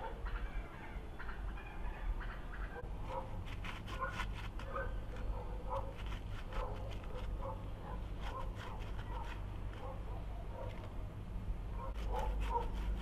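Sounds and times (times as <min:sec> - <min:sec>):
metal grater scraping: 0:03.4 - 0:07.4, 0:08.1 - 0:10.0, 0:11.9 - 0:13.0.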